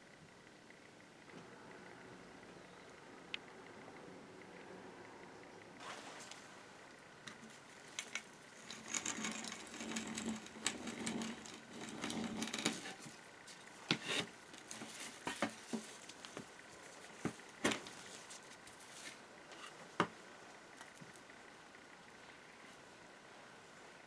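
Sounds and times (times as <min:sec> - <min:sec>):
hand drill gears whirring: 0:08.0 - 0:13.0.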